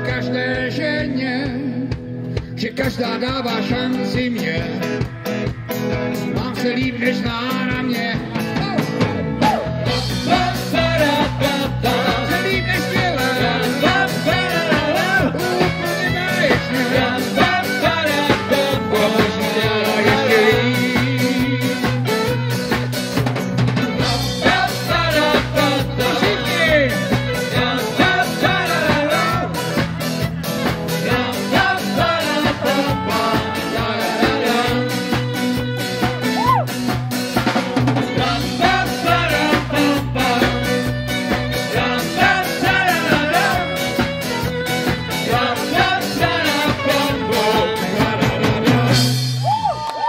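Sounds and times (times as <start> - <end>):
drum kit: 0.0 - 49.8
bass line: 0.0 - 49.9
electric guitar: 0.0 - 50.0
saxophone: 9.3 - 50.0
violin: 40.3 - 48.8.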